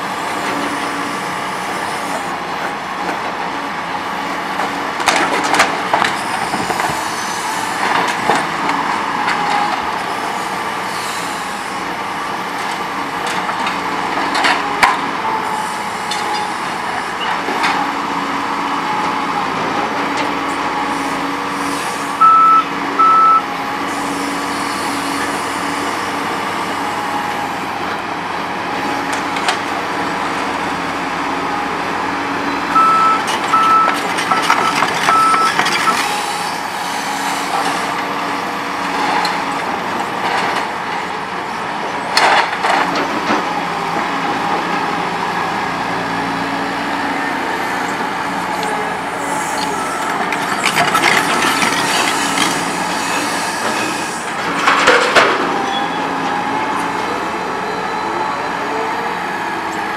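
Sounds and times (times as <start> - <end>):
excavator diesel engine and hydraulics: 0.0 - 59.9
warning alarm beeps: 22.2 - 23.5, 32.7 - 36.1.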